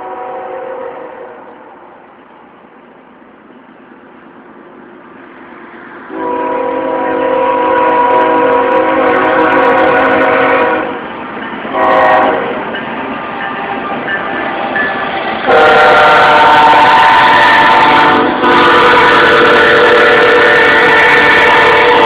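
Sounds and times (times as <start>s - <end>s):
locomotive air horn: 0.0s - 1.4s, 6.1s - 11.0s, 11.7s - 12.6s, 15.4s - 22.0s.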